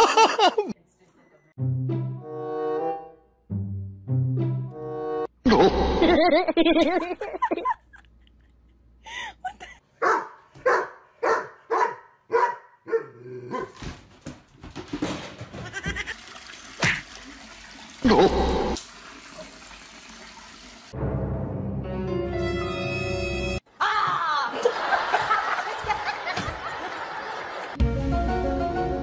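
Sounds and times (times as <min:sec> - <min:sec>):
music: 0:01.6 - 0:05.3, 0:21.0 - 0:23.6, 0:27.8 - 0:29.0.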